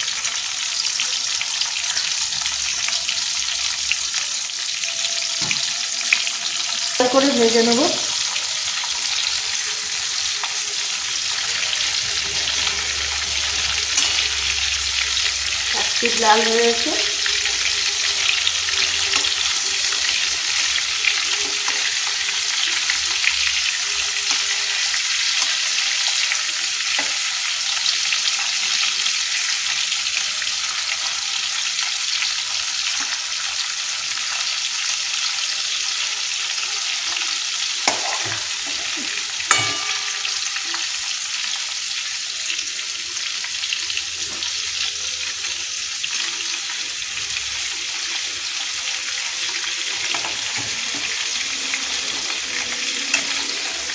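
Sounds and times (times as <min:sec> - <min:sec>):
prawns sizzling in hot oil: 0:00.0 - 0:53.9
metal spatula knocking on pan: 0:39.5 - 0:40.5.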